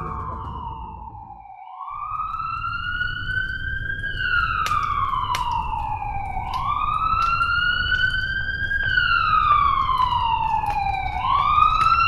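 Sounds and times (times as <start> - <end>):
steady low rumble: 0.0 - 1.6
siren wailing: 0.0 - 12.0.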